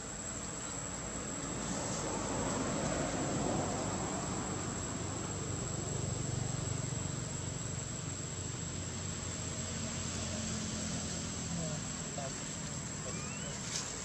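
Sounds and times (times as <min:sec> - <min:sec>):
outdoor hiss: 0:00.0 - 0:14.0
high-pitched insect drone: 0:03.4 - 0:14.0.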